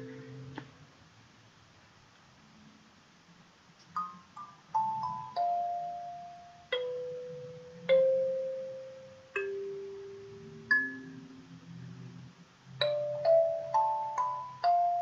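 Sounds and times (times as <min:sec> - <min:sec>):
kalimba notes: 0:00.0 - 0:00.6, 0:04.0 - 0:11.5, 0:12.8 - 0:15.0.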